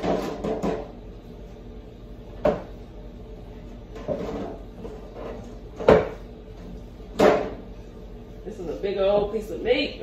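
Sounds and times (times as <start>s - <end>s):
rustling and scraping in bowl: 0.0s - 1.8s, 3.4s - 8.9s.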